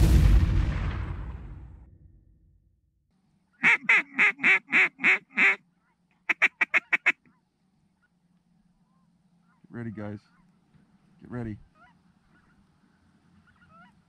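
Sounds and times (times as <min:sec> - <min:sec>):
duck quacking: 0:03.6 - 0:07.4, 0:11.6 - 0:12.6, 0:13.4 - 0:14.0.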